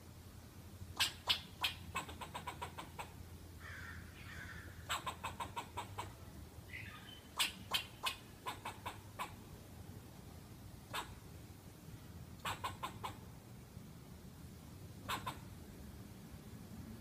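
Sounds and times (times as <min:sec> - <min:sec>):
squirrel barking alarm chatter: 0:01.0 - 0:09.4, 0:10.8 - 0:11.3, 0:12.4 - 0:13.2, 0:15.0 - 0:15.6.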